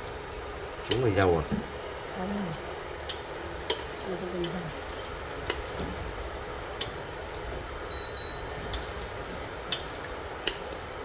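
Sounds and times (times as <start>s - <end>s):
high double beep: 7.9s - 8.4s.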